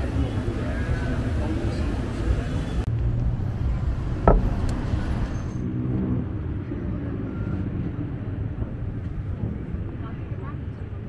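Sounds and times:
road traffic rumble: 0.0 - 11.0
sharp knock: 4.2 - 4.6.

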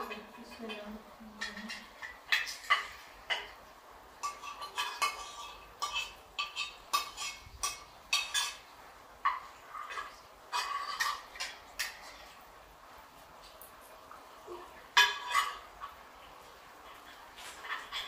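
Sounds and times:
metal spoons clinking on plates: 0.0 - 3.6, 4.2 - 12.4, 14.6 - 16.0, 16.9 - 18.0.

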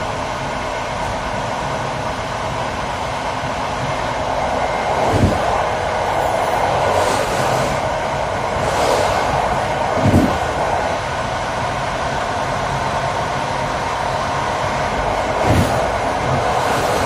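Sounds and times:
train wheels rumbling on rail: 0.0 - 17.0
heavy thuds from wheels: 5.0 - 5.6, 10.0 - 10.6, 15.2 - 17.0.

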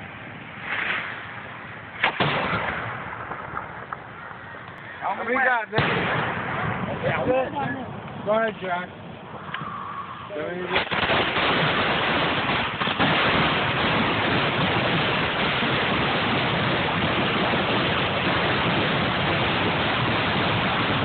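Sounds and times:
firework fountain hissing: 0.0 - 21.0.

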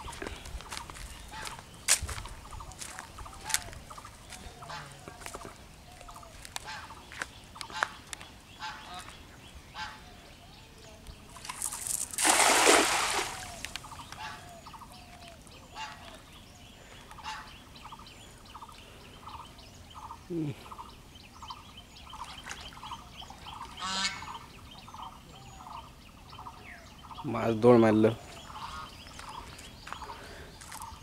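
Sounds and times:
fowl calling: 2.7 - 8.0, 13.2 - 16.2, 23.0 - 24.5, 28.3 - 30.9
net splashing into water: 11.4 - 13.8.

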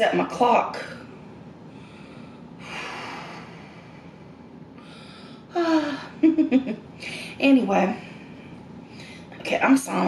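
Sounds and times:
woman breathing: 0.8 - 6.2, 7.0 - 9.4
woman murmuring: 5.5 - 6.7.

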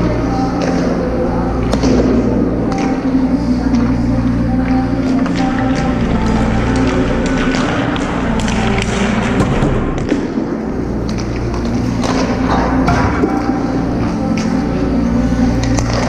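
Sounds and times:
hockey sticks and pucks clacking: 0.0 - 4.0, 4.6 - 16.0
steady low hum: 0.0 - 16.0.

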